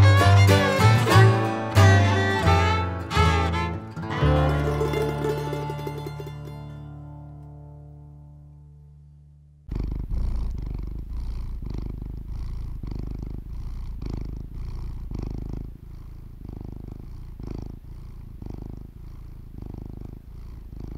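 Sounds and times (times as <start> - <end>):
cat purring: 8.9 - 20.9.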